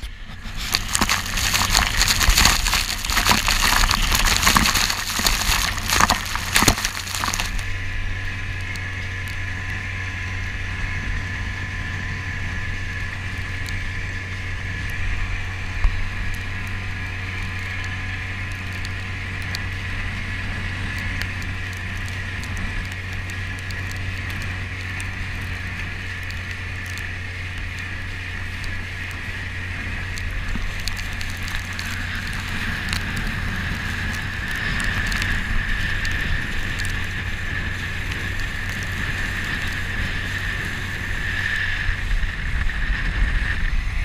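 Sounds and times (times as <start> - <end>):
outboard motor running: 0.0 - 44.0
water rushing along hull: 0.0 - 44.0
spray splashing against hull: 0.3 - 7.7.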